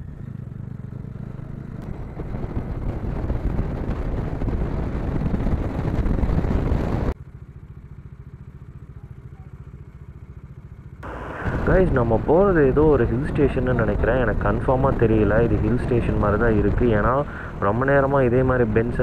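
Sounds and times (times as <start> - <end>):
motorcycle engine accelerating: 0.0 - 19.0
wind noise: 1.8 - 7.2, 11.0 - 19.0.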